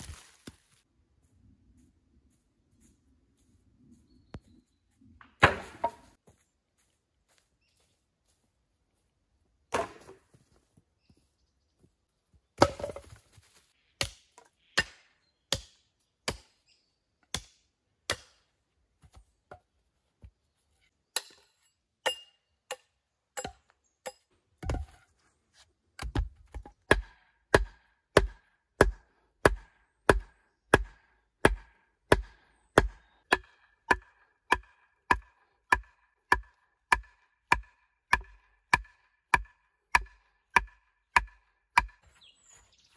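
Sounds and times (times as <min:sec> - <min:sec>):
hatchet chopping wood: 0:05.4 - 0:06.1, 0:09.7 - 0:10.2, 0:14.0 - 0:16.6, 0:17.3 - 0:18.5, 0:21.1 - 0:24.9, 0:26.0 - 0:42.1
stake hammered into ground: 0:26.9 - 0:42.0.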